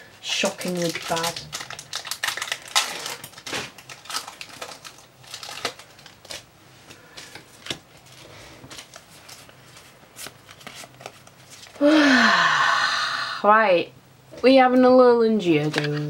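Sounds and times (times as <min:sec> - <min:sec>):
foil wrapper crinkling: 0:00.3 - 0:11.8.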